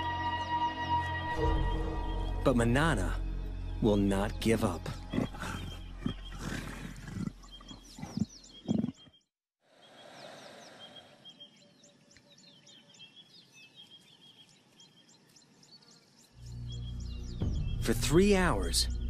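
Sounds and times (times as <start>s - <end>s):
birds chirping: 0.0s - 19.0s
leopard snarling and growling: 4.9s - 9.0s.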